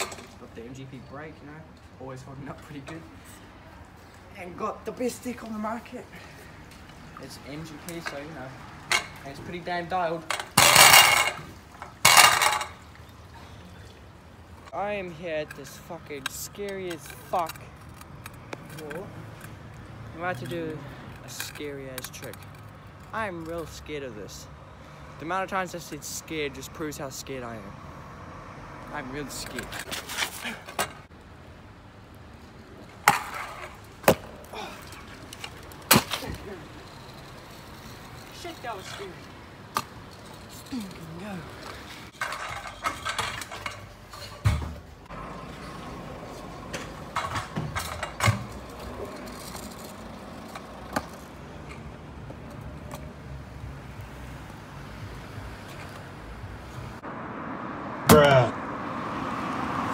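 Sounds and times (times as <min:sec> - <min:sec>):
low hum of traffic: 0:00.0 - 0:59.9
scooter wheels rolling: 0:02.4 - 0:13.8, 0:14.4 - 0:23.8, 0:29.0 - 0:56.9
scooter deck impacts on asphalt: 0:33.0 - 0:34.5, 0:35.3 - 0:36.6, 0:58.0 - 0:58.5.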